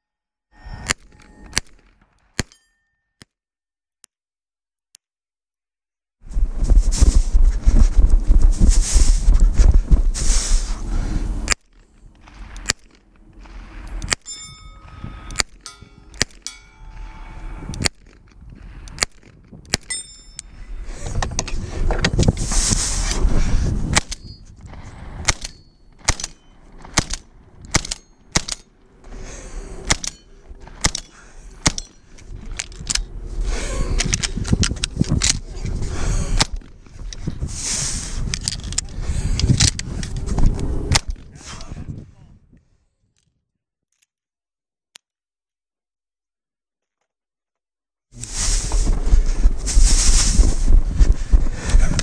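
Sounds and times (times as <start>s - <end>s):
steel targets ringing: 14.2s - 17.7s, 19.9s - 20.4s
gunshots: 25.2s - 28.6s, 29.8s - 31.9s.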